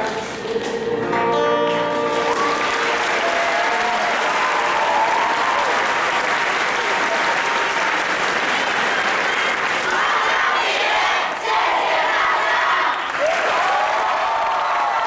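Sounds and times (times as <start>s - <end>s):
audience applauding: 1.9s - 11.6s, 12.7s - 15.0s
choir singing: 9.3s - 13.0s.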